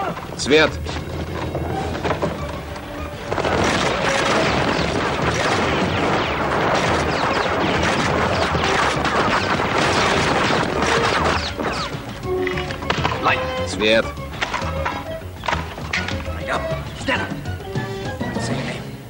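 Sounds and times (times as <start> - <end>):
objects smashing: 0.0 - 16.4
automatic gunfire: 3.3 - 13.4.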